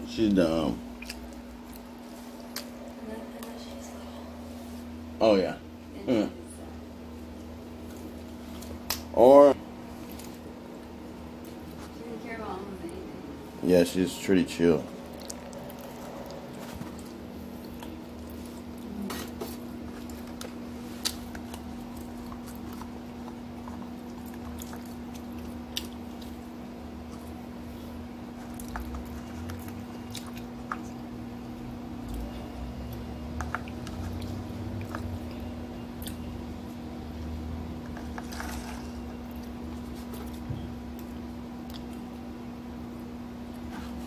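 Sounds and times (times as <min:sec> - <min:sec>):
steady low hum: 0:00.0 - 0:44.0
chewing and wet mouth sounds: 0:00.2 - 0:03.9, 0:09.9 - 0:11.9, 0:14.8 - 0:43.7.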